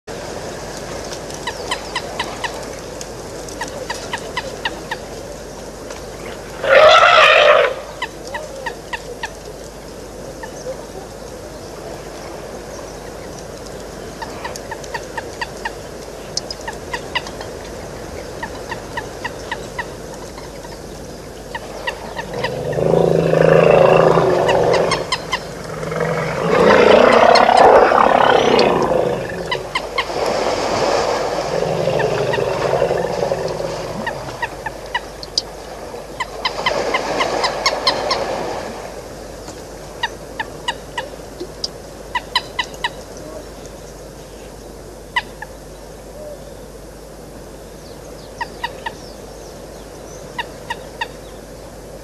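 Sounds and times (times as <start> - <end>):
elephant trumpeting: 6.6 - 7.9, 22.3 - 29.8.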